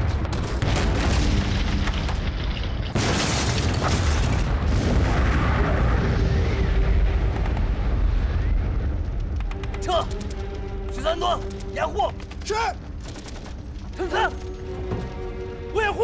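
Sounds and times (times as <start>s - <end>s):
heavy low explosion rumble: 0.0s - 9.4s
sharp explosion blast: 2.9s - 9.2s.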